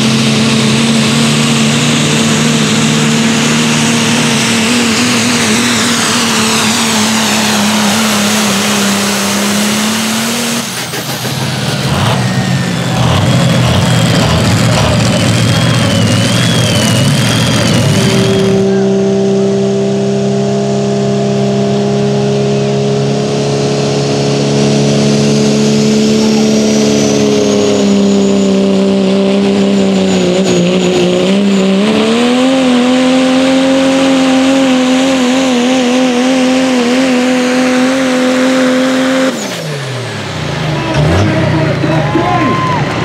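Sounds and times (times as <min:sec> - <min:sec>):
diesel engine at full throttle: 0:00.0 - 0:43.0
high turbo whistle: 0:02.1 - 0:20.0, 0:24.7 - 0:31.4.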